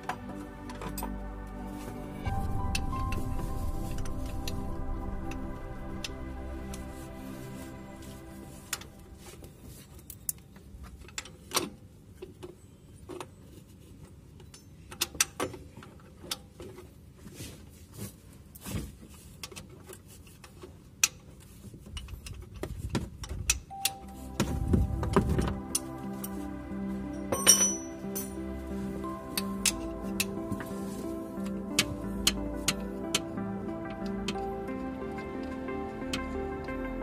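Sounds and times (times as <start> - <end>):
background music: 0.0 - 9.8, 23.7 - 37.0.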